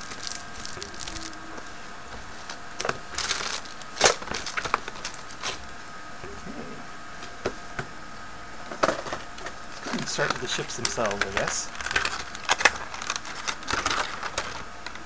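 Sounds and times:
plastic wrap crinkling: 0:00.0 - 0:05.7, 0:09.1 - 0:15.0.

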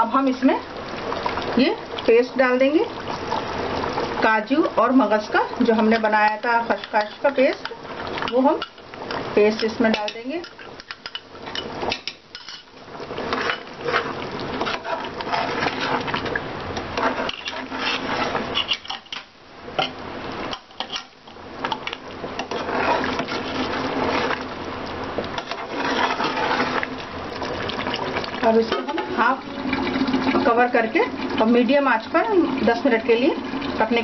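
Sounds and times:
metal spoon scraping pot: 0:05.8 - 0:07.7, 0:09.6 - 0:12.7, 0:13.3 - 0:16.2, 0:17.0 - 0:19.9, 0:20.5 - 0:21.2, 0:21.8 - 0:24.4, 0:25.4 - 0:26.9.

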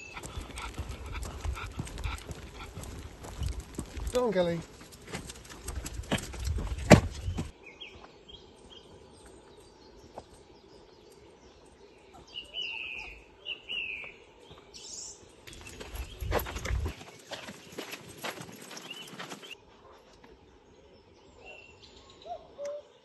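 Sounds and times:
songbirds singing: 0:00.0 - 0:04.8, 0:05.5 - 0:23.0
footsteps and paws on gravel: 0:00.0 - 0:12.7, 0:13.9 - 0:20.5.

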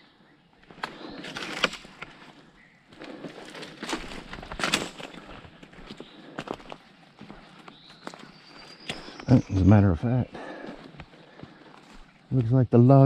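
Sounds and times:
footsteps crunching on leaves and sticks: 0:00.6 - 0:09.8, 0:10.4 - 0:12.6.

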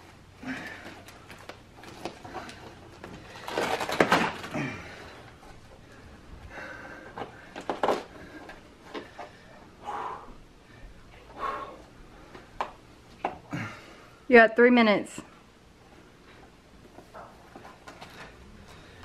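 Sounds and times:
duct tape crinkling and tearing: 0:01.0 - 0:04.7.

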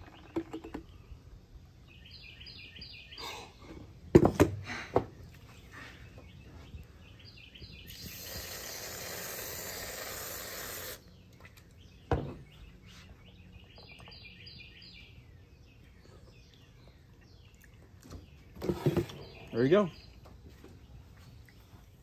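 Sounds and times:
birds chirping: 0:00.0 - 0:04.0, 0:05.0 - 0:22.0
aerosol can spraying hiss: 0:07.9 - 0:11.0.

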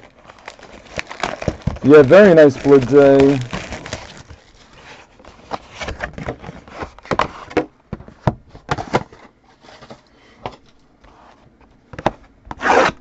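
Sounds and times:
cards clicking and rustling: 0:01.0 - 0:04.1.

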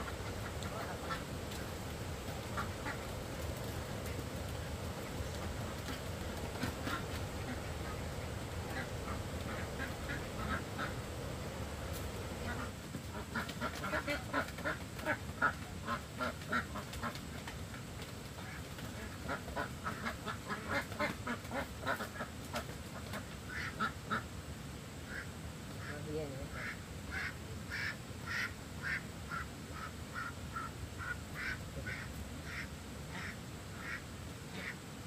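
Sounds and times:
ducks quacking: 0:00.0 - 0:17.3, 0:18.4 - 0:24.3, 0:25.0 - 0:34.8.

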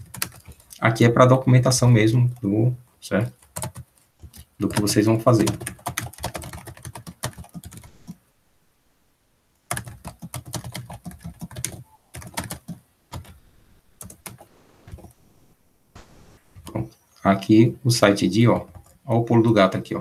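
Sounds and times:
keyboard typing clicks: 0:05.5 - 0:08.2, 0:09.7 - 0:13.4.

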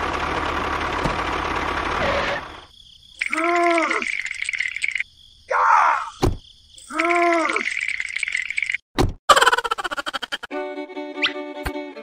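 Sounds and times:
cartoon chirring tone with ticks: 0:03.2 - 0:05.1.

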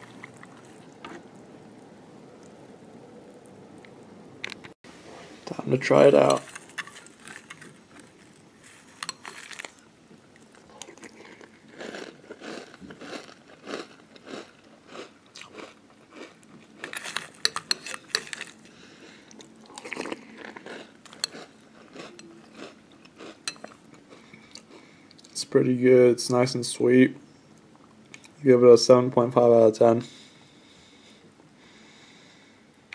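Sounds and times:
person chewing crunchy cereal: 0:00.0 - 0:01.2, 0:06.2 - 0:25.4.

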